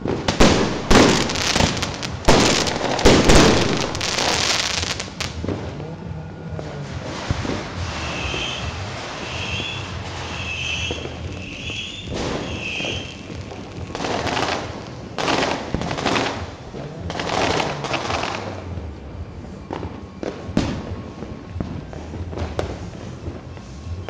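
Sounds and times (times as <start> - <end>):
fireworks bursts: 0.0 - 5.7, 7.0 - 18.6
fireworks bangs: 0.0 - 5.8, 7.0 - 18.5.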